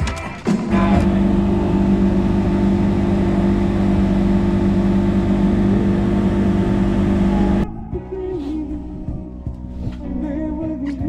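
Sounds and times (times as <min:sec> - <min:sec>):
boat engine humming: 0:00.7 - 0:07.6.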